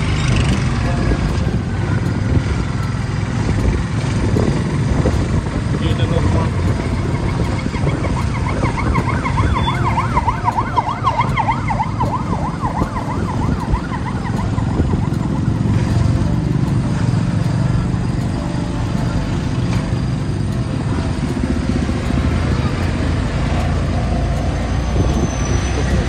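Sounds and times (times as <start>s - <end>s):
low rumbling wind: 0.0s - 26.0s
vehicles passing: 0.0s - 26.0s
siren yelping: 6.7s - 15.8s.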